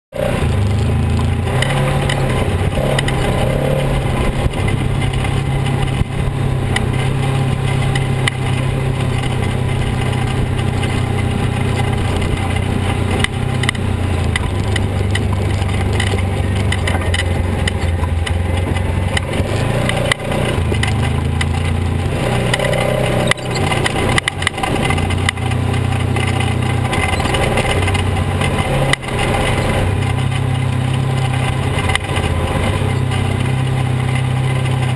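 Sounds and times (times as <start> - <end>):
off-road vehicle engine: 0.1 - 34.9
vehicle knocking over rocks: 1.1 - 22.7.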